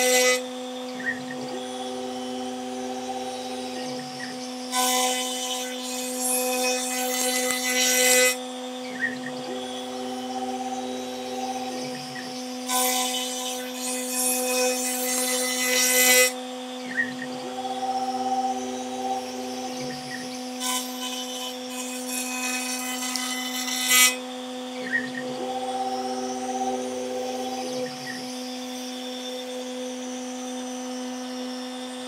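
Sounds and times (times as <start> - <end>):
cutter rasping into wood: 0.0 - 16.4
router spindle whine: 0.0 - 32.0
low steady tone: 1.2 - 4.4, 9.0 - 12.4, 17.1 - 20.3, 24.8 - 28.2.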